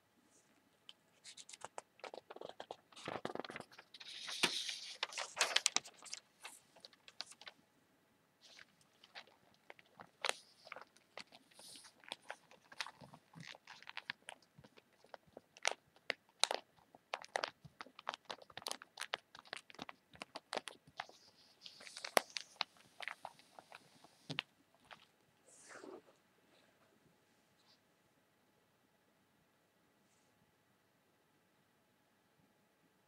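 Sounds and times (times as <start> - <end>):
paper rustling: 1.2 - 7.6, 8.5 - 15.8, 16.4 - 26.0.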